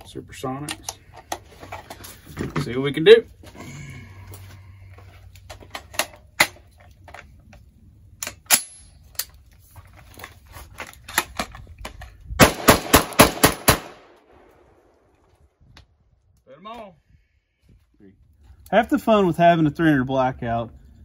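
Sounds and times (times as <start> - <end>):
rifle gunshots: 12.4 - 14.9.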